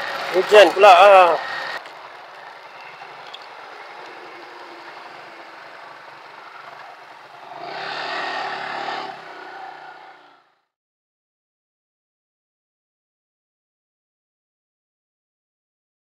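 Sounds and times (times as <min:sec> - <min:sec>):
motorcycle moving slowly: 0:00.0 - 0:10.7
wind and road noise: 0:00.0 - 0:10.7.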